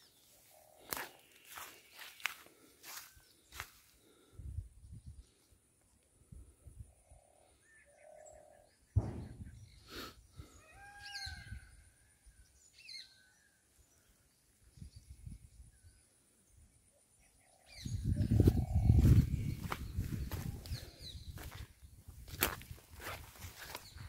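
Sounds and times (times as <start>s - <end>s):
footsteps rustling through grass: 0.2s - 4.0s, 18.2s - 24.0s
birds chirping and whistling: 7.0s - 11.8s, 12.6s - 16.1s, 17.2s - 24.0s
sudden thump: 9.0s - 9.7s.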